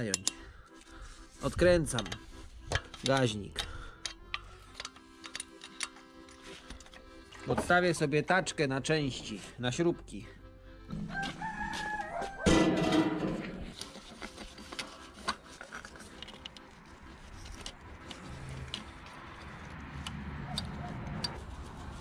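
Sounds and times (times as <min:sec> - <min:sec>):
small clicks and taps of tools: 0:02.1 - 0:06.0
wheelbarrow metallic thump: 0:12.3 - 0:13.8.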